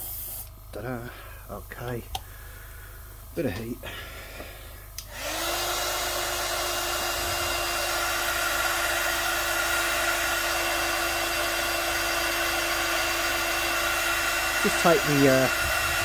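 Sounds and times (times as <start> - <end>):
hot-air dryer blowing: 3.8 - 16.0.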